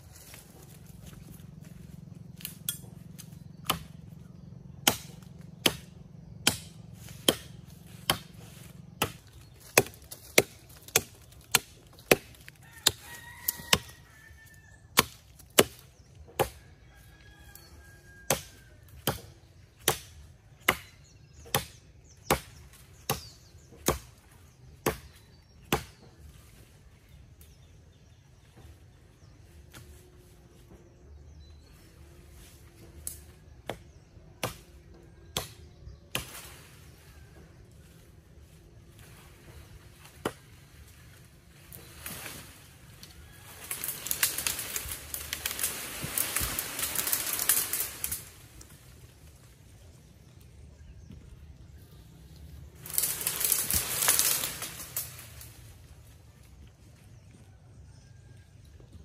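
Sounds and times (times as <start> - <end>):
machete chopping tree trunk: 2.4 - 13.9, 14.9 - 16.6, 18.2 - 26.1, 33.2 - 36.5.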